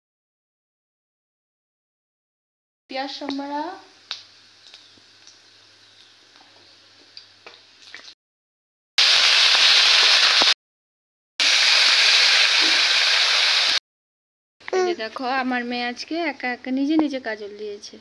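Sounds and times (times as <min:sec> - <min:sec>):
food sizzling in hot oil: 0:02.9 - 0:08.2, 0:09.0 - 0:10.6, 0:11.4 - 0:13.8.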